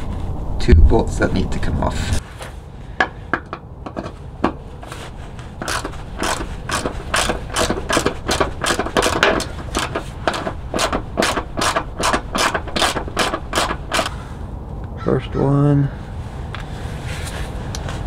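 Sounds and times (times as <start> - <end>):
ratchet wrench clicking: 5.6 - 14.1.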